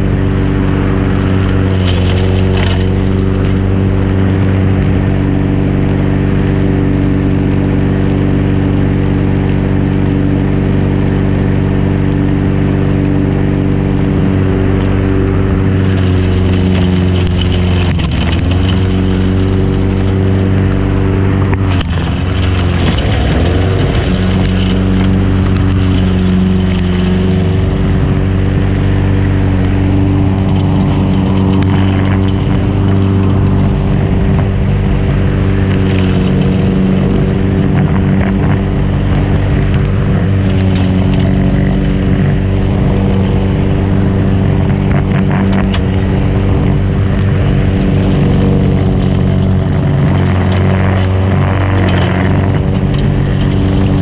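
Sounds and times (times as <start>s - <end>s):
lawnmower engine at full throttle: 0.0s - 54.0s
moss being chopped by blades: 1.1s - 3.8s, 15.7s - 33.8s.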